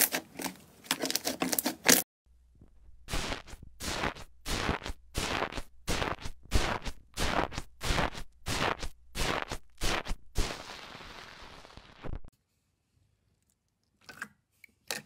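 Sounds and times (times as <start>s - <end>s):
foam slime crackling and popping: 3.1s - 12.3s.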